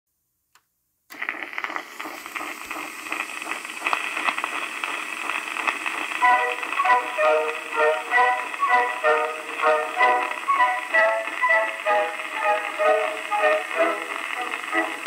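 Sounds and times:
record crackle and hiss: 0.1s - 15.0s
music: 6.2s - 15.0s.

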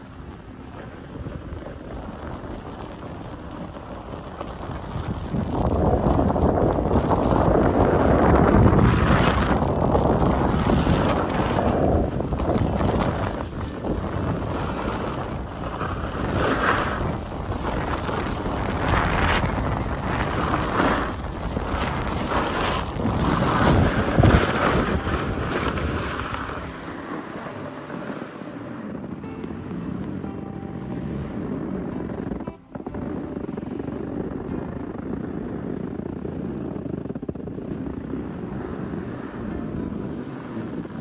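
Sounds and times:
wind buffeting microphone: 0.0s - 41.0s
ski edges scraping on snow: 0.7s - 30.2s.

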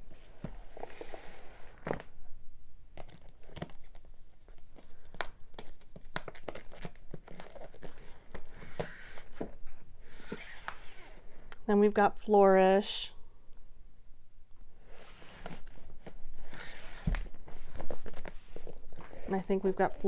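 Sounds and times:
plastic sleeves crinkling: 3.0s - 9.6s, 15.4s - 20.0s.

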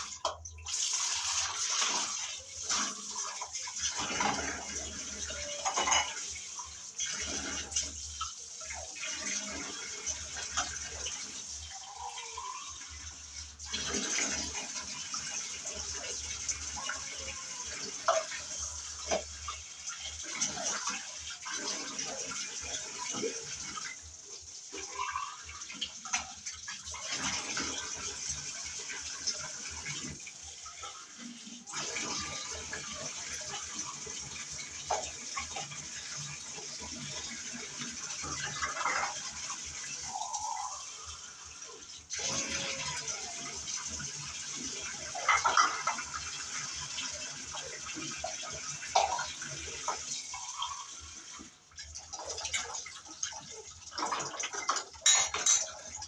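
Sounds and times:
utensils clinking: 54.4s - 56.0s.

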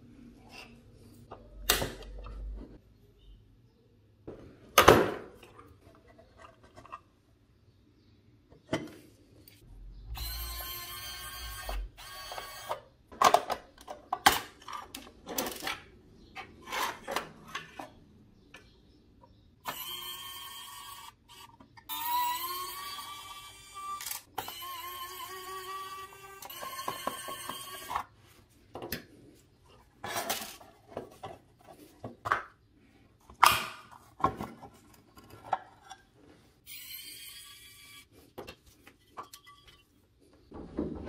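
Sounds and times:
electric screwdriver whirring: 10.2s - 12.8s, 19.7s - 27.9s.

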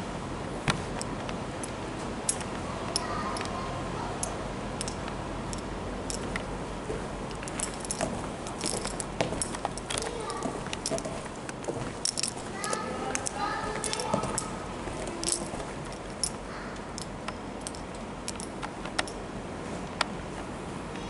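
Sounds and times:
room noise: 0.0s - 21.0s
light clicks and taps: 7.3s - 19.2s.

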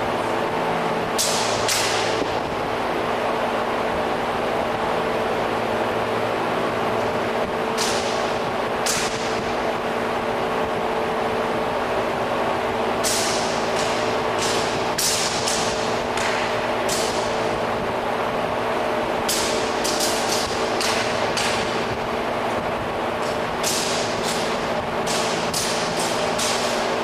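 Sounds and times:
steady hum and hiss: 0.0s - 27.0s
spear and sword clacking: 13.0s - 17.3s, 23.2s - 26.9s.

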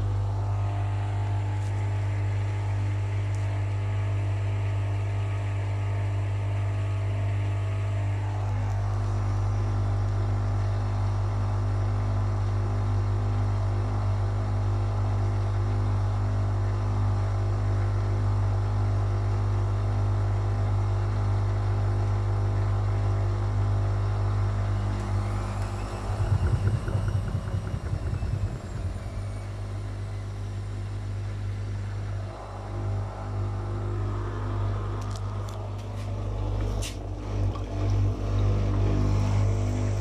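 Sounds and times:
faint whine: 0.0s - 11.3s, 23.0s - 40.0s
washing machine motor hum: 0.0s - 40.0s
washing machine drum thumping: 24.8s - 30.6s.

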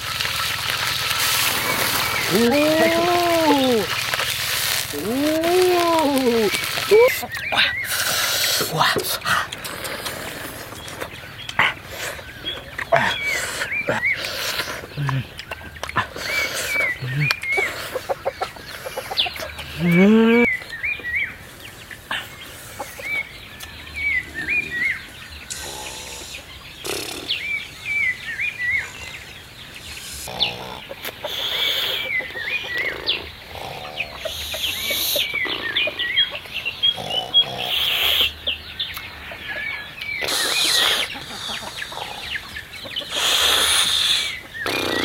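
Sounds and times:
birds chirping: 0.0s - 45.0s
scattered animal calls: 0.3s - 20.8s, 28.7s - 45.0s
loud rising animal call: 1.4s - 4.2s.

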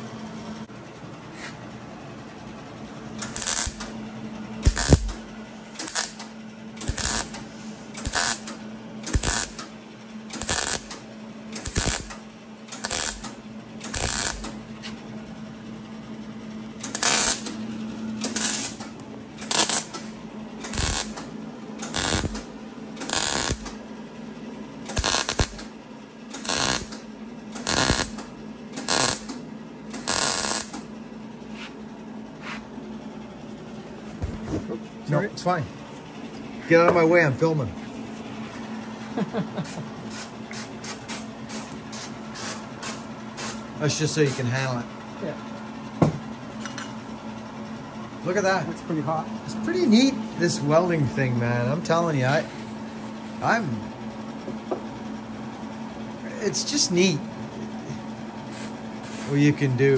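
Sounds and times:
steady low hum: 0.0s - 59.9s
welder crackling bursts: 3.2s - 3.9s, 4.6s - 5.2s, 5.8s - 7.4s, 8.0s - 9.7s, 10.3s - 11.0s, 11.6s - 14.6s, 16.8s - 17.5s, 18.2s - 18.8s, 19.4s - 20.0s, 20.6s - 23.8s, 24.9s - 25.7s, 26.3s - 27.0s, 27.6s - 29.4s, 30.0s - 30.8s, 40.1s - 43.6s.

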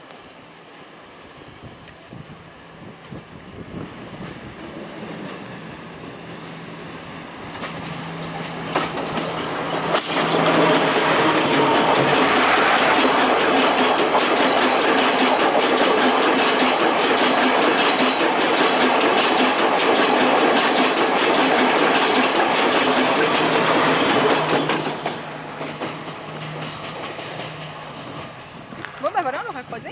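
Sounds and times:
train wheels clattering over rails: 7.4s - 29.9s.

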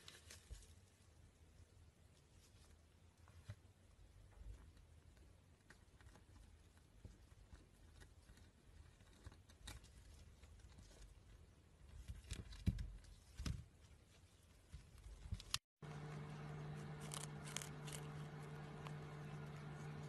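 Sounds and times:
guinea pig scuffs and clicks: 2.0s - 20.0s.

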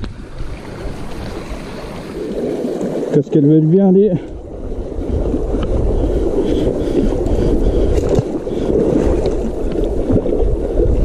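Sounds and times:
river water rushing: 0.0s - 3.6s
wind on microphone: 0.0s - 11.0s.

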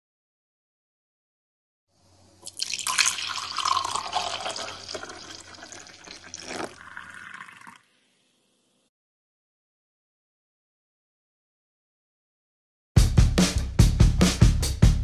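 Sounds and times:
liquid pouring into a mug: 2.4s - 7.9s.

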